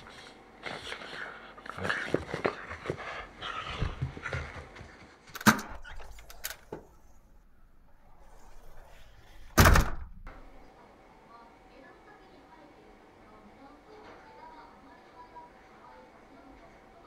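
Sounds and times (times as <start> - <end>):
dog moving and breathing: 0.0 - 7.2.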